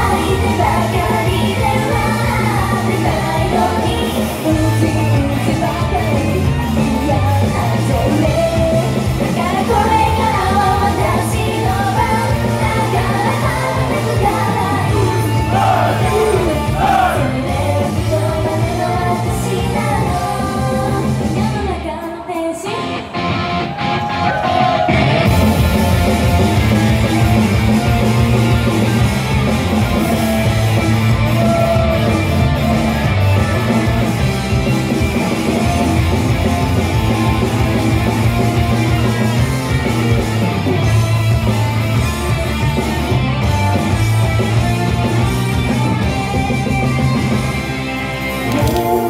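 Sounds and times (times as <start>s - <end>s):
person singing: 0.0s - 23.0s, 48.5s - 49.0s
live pop-rock music through speakers: 0.0s - 49.0s.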